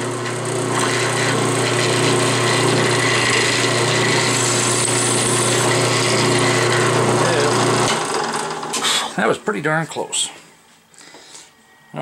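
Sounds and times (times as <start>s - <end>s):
drill press motor hum: 0.0s - 9.2s.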